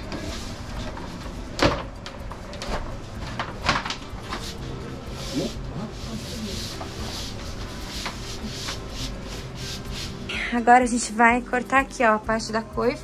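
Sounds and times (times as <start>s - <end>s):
palms rubbing across panel: 4.3s - 10.3s.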